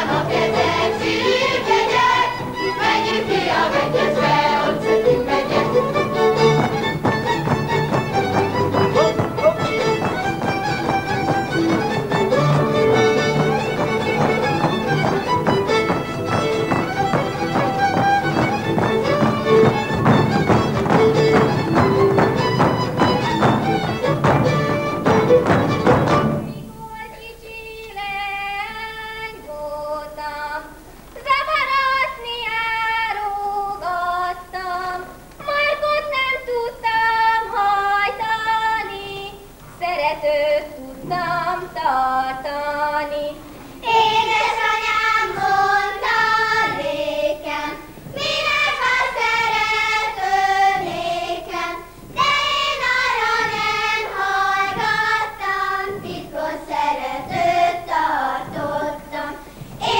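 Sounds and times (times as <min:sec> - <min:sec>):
girls singing in a group: 0:00.0 - 0:08.5, 0:26.2 - 0:59.9
woman singing folk song: 0:26.4 - 0:44.0.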